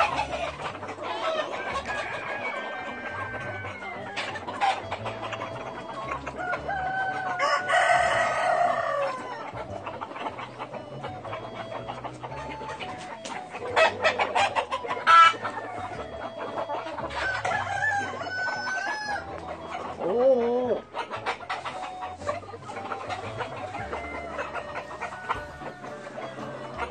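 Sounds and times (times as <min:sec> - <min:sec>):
chickens clucking: 0:00.0 - 0:26.9
rooster crowing: 0:01.5 - 0:04.3, 0:06.4 - 0:09.6, 0:17.1 - 0:19.4, 0:23.4 - 0:26.9.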